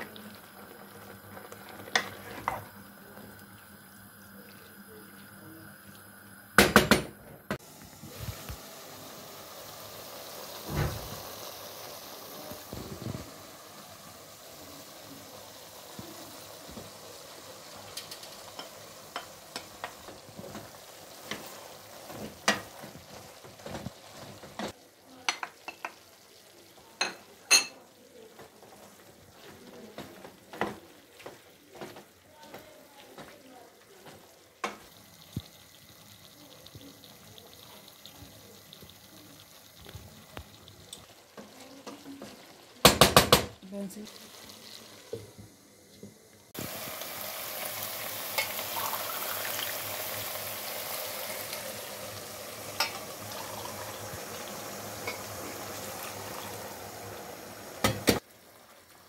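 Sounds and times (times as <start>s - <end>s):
meat and onion sizzling: 0.0s - 59.0s
wooden spoon knocking on pan: 6.6s - 7.1s, 42.2s - 43.6s, 57.8s - 58.2s.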